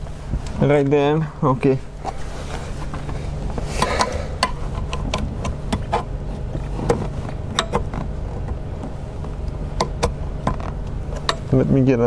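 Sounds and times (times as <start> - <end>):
scraping rustle: 0.0 - 4.9
steady low hum: 0.0 - 12.0.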